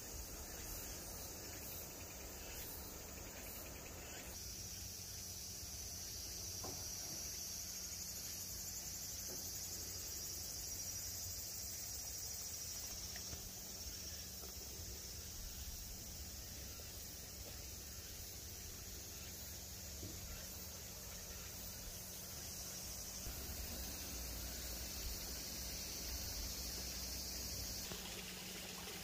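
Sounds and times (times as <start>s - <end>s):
insects buzzing: 0.0s - 29.0s.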